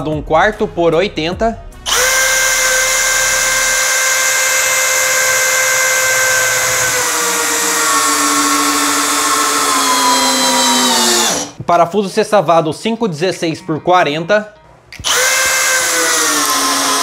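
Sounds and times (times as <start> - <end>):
cordless drill whining: 1.9 - 11.6, 15.0 - 17.0.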